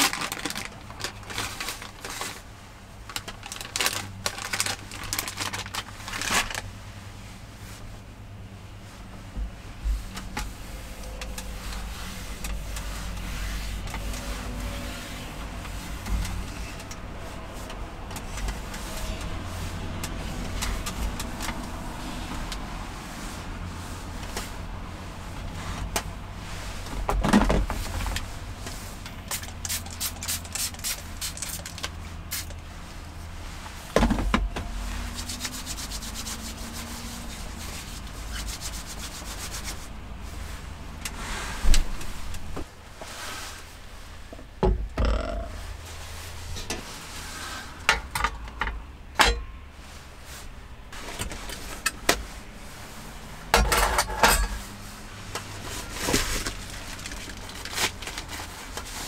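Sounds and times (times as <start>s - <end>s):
paper towel rubbing on wood: 10.0s - 16.7s, 34.9s - 40.5s.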